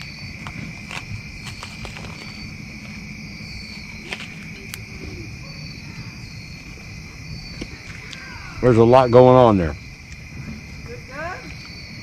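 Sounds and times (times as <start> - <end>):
campfire crackling and popping: 0.0 - 5.5
crickets chirping: 0.0 - 12.0.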